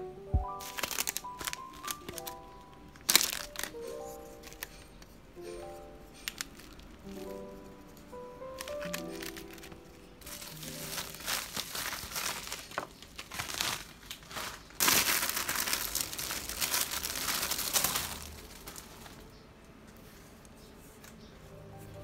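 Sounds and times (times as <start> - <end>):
plastic bag crinkling: 0.6 - 19.4.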